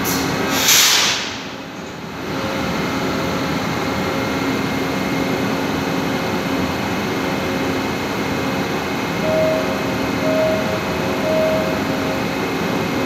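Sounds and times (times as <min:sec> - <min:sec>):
train motor humming: 0:08.1 - 0:13.0.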